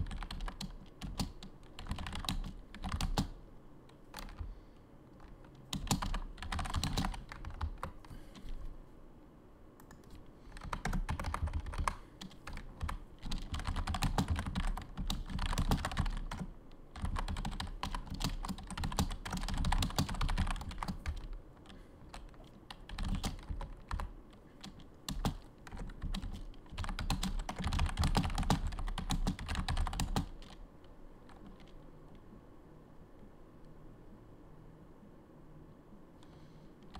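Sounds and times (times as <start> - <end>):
computer keyboard typing: 0.0 - 4.5, 5.2 - 8.6, 9.8 - 30.6, 31.2 - 31.8.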